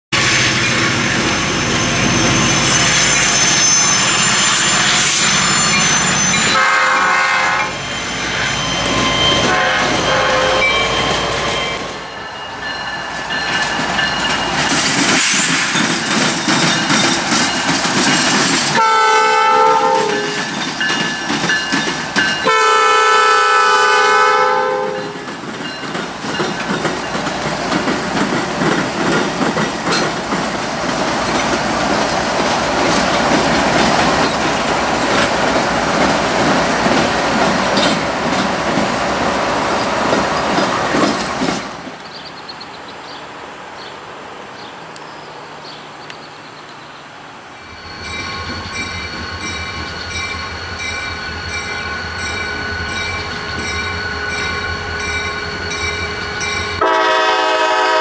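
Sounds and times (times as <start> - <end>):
freight train noise: 0.1 - 58.0
train wheels clacking over rails: 0.2 - 12.0, 12.6 - 23.0, 24.9 - 42.0
locomotive horn blasts: 6.5 - 8.4, 9.3 - 10.9, 18.8 - 20.4, 22.4 - 25.2, 56.0 - 58.0.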